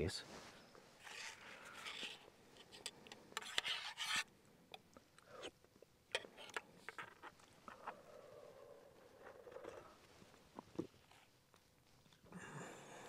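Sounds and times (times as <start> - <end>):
spoon scraping in mug: 1.0 - 4.2.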